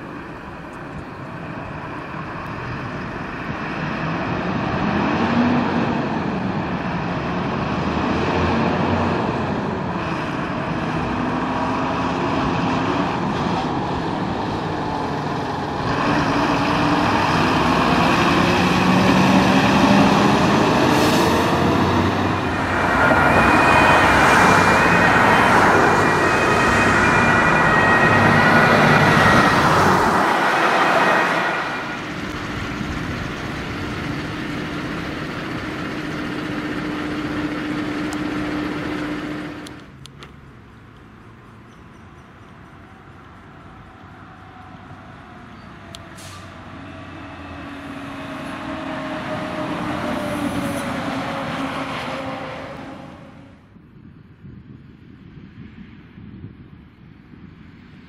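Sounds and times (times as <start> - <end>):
fire truck diesel engine revving: 0.0 - 40.3, 43.2 - 53.5
traffic noise: 0.0 - 58.0
two-tone siren: 22.1 - 33.1.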